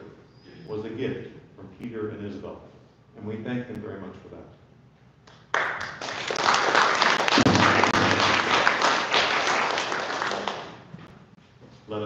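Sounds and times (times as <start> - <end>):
congregation applauding: 5.5 - 10.9.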